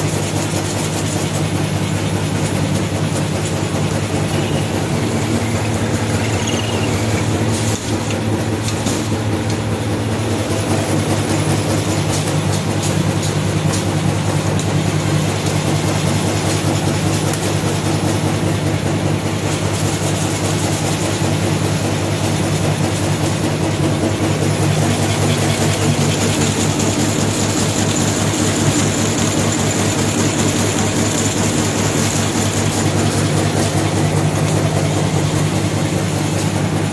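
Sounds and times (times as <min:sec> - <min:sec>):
motor hum: 0:00.0 - 0:12.2, 0:21.2 - 0:36.9
machine clatter: 0:00.0 - 0:36.9.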